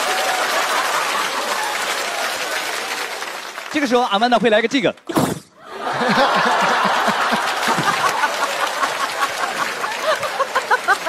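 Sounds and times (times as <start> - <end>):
audience applauding: 0.0 - 4.6, 5.8 - 11.0
audience laughing: 5.6 - 11.0.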